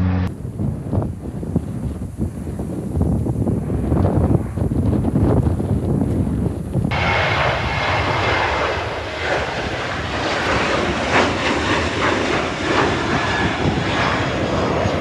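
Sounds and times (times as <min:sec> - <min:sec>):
jet engines roaring at takeoff: 0:06.9 - 0:15.0.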